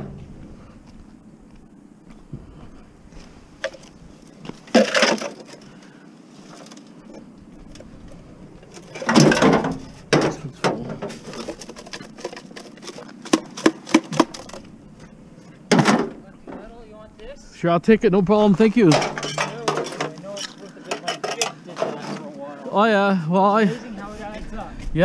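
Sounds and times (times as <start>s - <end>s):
metal gutter sections clattering: 4.5s - 5.8s, 6.4s - 16.8s, 18.6s - 22.4s.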